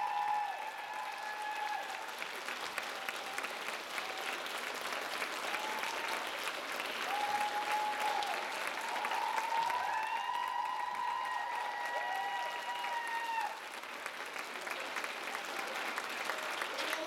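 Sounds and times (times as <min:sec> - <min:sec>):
crowd whooping: 0:00.0 - 0:02.0, 0:07.0 - 0:13.6
audience applauding: 0:00.0 - 0:17.0.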